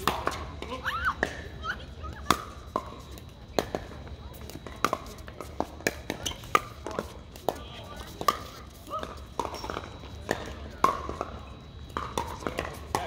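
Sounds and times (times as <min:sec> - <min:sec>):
players' voices: 0:00.0 - 0:13.0.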